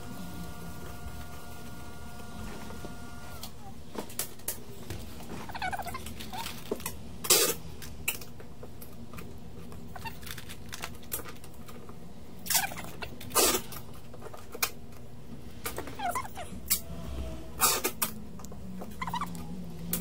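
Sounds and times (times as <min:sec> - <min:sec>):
low hum of bench equipment: 0:00.0 - 0:20.0
metal parts clicking and scraping: 0:09.9 - 0:11.9.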